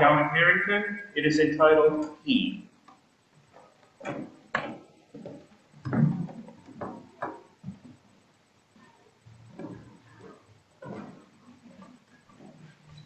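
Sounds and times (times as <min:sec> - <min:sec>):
footsteps on wood: 0:03.6 - 0:08.0, 0:09.5 - 0:13.0.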